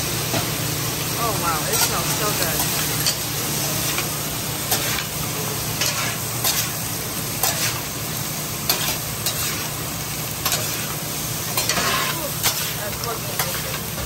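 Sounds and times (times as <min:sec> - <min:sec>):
food sizzling on griddle: 0:00.0 - 0:14.0
metal spatula scraping griddle: 0:05.8 - 0:06.8, 0:08.7 - 0:09.8, 0:10.4 - 0:13.8.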